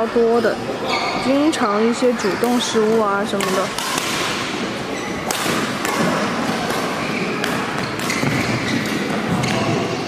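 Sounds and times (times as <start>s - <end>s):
court shoes squeaking: 0.0s - 10.0s
racket striking shuttlecock: 2.4s - 10.0s.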